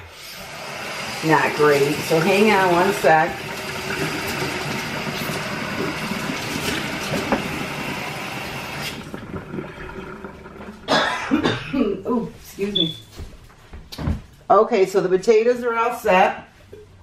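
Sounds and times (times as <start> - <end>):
tap water running: 0.0 - 11.5.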